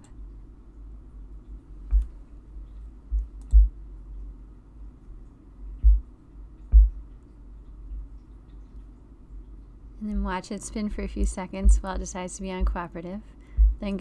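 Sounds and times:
computer mouse clicking: 3.2s - 3.7s.

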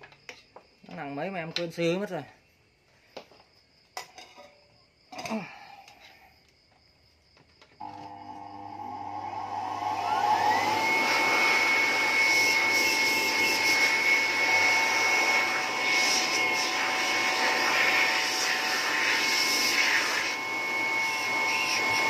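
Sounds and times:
electric blower whining: 7.8s - 22.0s.

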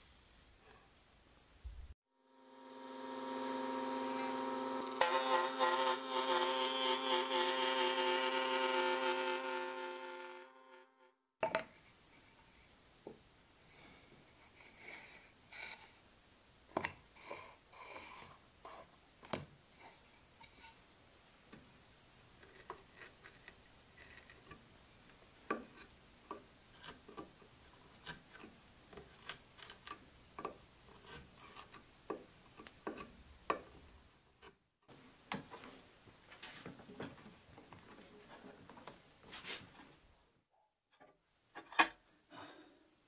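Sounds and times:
chisel cutting wood: 3.2s - 10.4s.

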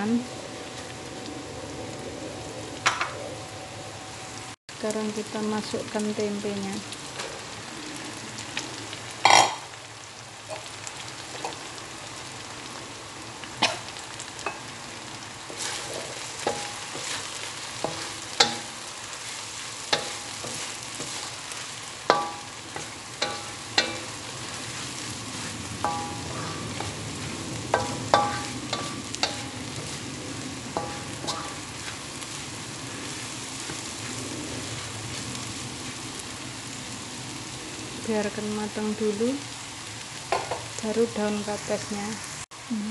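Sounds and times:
food sizzling in hot oil: 0.0s - 42.9s
spatula stirring and scraping: 15.4s - 37.0s.

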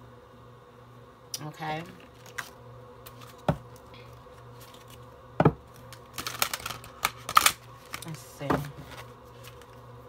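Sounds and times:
cards knocking on a table: 3.1s - 3.7s, 5.4s - 5.6s.

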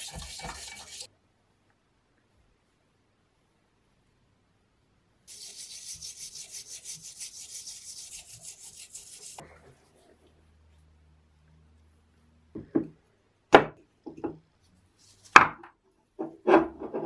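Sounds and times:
toothbrush scrubbing metal: 0.0s - 1.1s, 5.3s - 9.4s.

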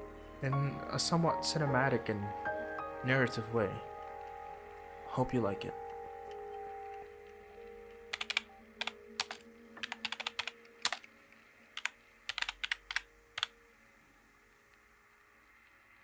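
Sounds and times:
keyboard typing clicks: 7.9s - 11.1s, 11.8s - 13.5s.

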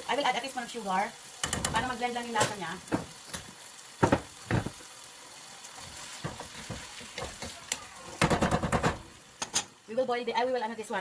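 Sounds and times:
food sizzling in a pan: 0.0s - 11.0s
spatula scraping and knocking pan: 5.8s - 9.7s.

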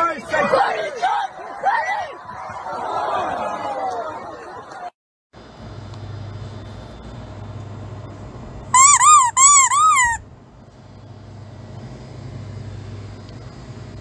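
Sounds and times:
low background hum: 5.4s - 14.0s
rubber squeeze toy squeaking: 8.7s - 10.2s.

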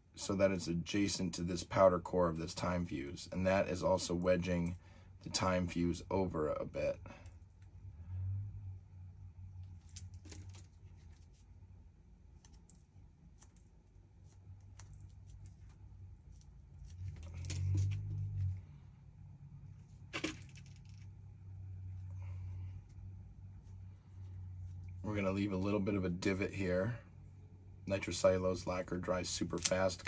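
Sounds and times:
low steady hum: 0.0s - 30.0s
small clicks taps and scraping: 12.3s - 18.5s.

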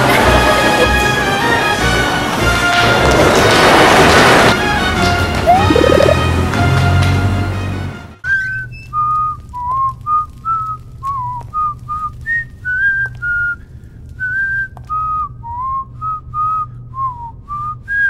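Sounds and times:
person whistling a tune: 14.2s - 18.0s.

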